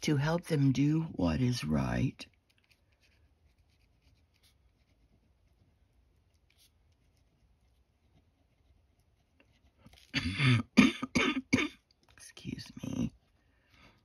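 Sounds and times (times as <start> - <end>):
pen scratching on paper: 2.5 - 10.1
woman coughing: 10.1 - 11.8.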